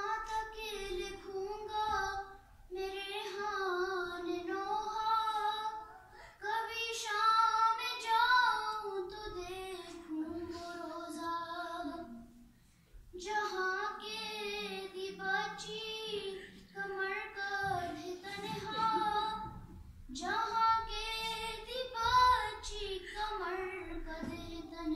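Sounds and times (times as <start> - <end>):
short breaths: 5.9 - 6.4, 12.4 - 13.1.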